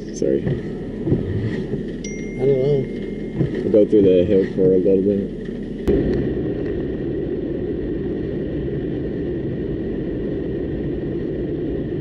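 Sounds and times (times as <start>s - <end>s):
tyre and engine rumble: 0.0s - 12.0s
faint steady high tone: 2.0s - 5.0s.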